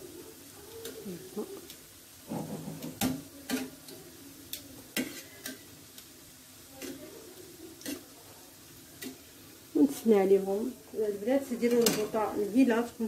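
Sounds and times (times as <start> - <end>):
faint frying sizzle: 0.0 - 13.0
metal tongs clicking on a frying pan: 0.8 - 1.0, 2.8 - 6.1, 6.7 - 8.1, 9.0 - 9.3, 11.6 - 12.2.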